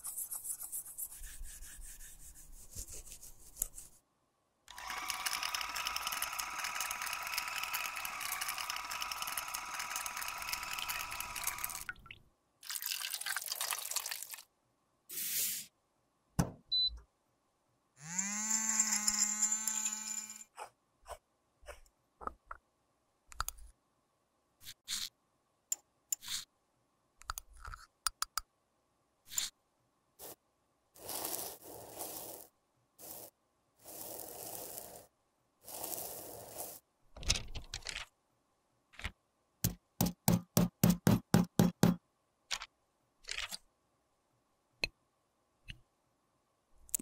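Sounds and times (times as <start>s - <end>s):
small electric grinder whirring: 4.7s - 11.9s, 18.0s - 20.5s
metal spatula scraping: 31.0s - 35.1s.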